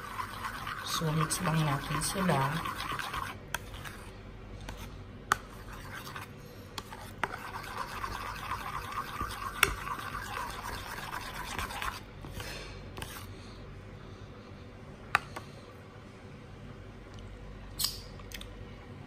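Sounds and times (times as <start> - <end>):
spoon scraping bowl: 0.0 - 12.0.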